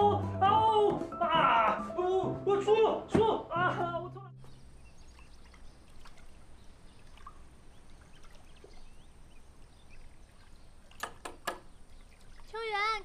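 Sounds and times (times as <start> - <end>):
faint bird chirps: 4.4 - 10.9.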